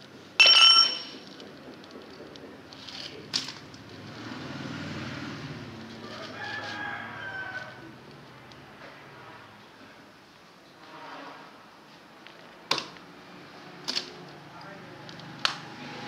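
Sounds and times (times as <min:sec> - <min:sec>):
metal-on-metal clink: 0:00.4 - 0:01.4.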